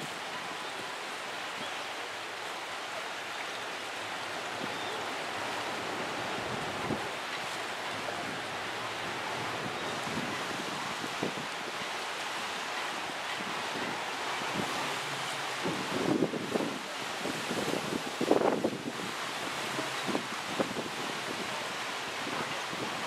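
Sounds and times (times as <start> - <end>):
wind over choppy sea: 0.0 - 23.0
wind buffeting microphone: 13.1 - 21.6.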